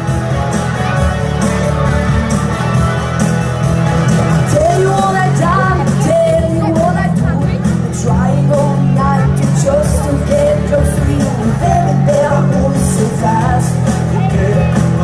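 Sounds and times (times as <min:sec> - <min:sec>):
pop-rock music through speakers: 0:00.0 - 0:15.0
woman singing into a microphone: 0:04.5 - 0:14.8.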